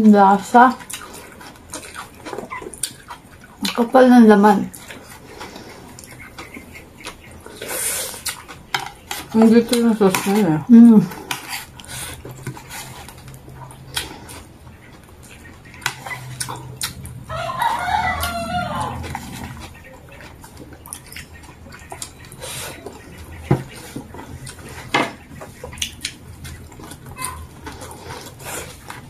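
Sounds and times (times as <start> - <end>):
rooster crowing: 17.2 - 19.7.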